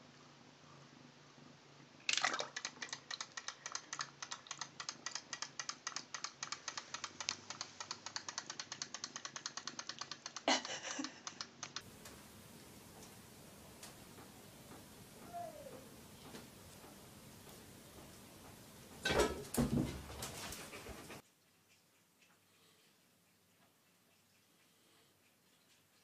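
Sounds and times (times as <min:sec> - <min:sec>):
rapid light clicks: 0:02.6 - 0:12.2.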